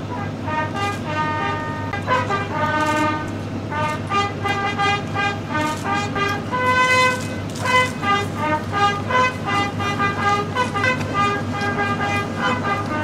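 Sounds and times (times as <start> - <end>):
ceremonial trumpet fanfare: 0.0 - 13.0.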